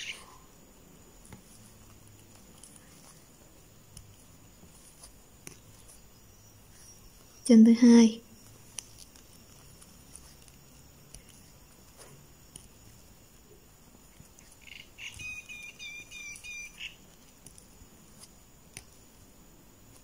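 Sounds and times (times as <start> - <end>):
high repeated chirps: 14.6 - 17.0.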